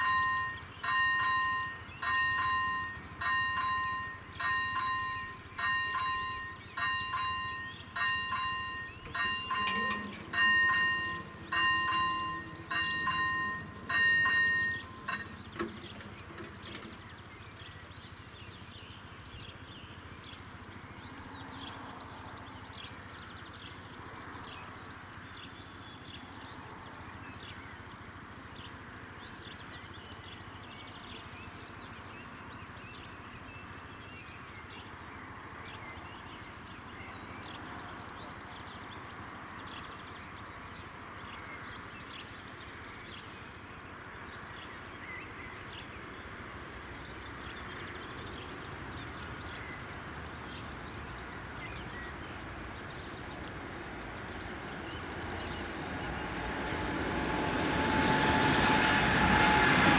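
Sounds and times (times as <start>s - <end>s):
small birds chirping: 0.0s - 57.8s.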